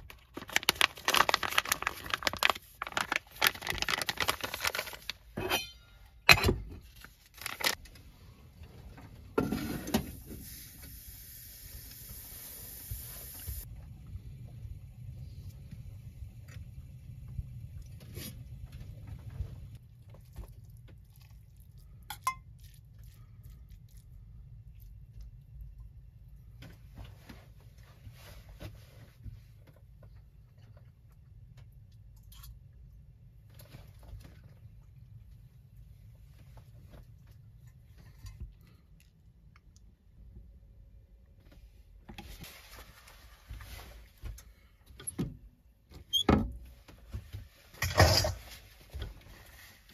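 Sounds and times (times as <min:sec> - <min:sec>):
low steady hum: 0:00.0 - 0:49.9
camp stove hiss: 0:10.3 - 0:13.6.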